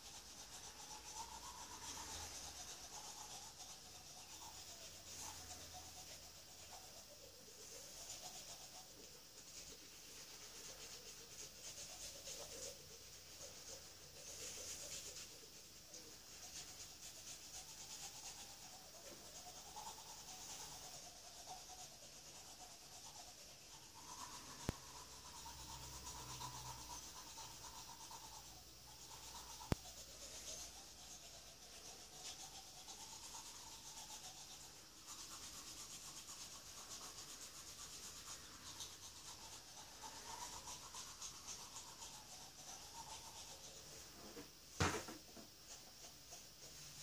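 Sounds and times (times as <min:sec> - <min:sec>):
toothbrush scrubbing teeth: 0:00.0 - 0:47.0.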